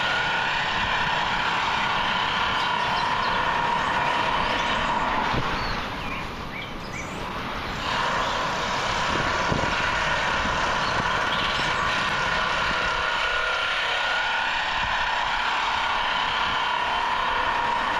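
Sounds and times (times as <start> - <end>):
birds chirping: 0.0 - 13.6
rushing outdoor noise: 0.0 - 17.9.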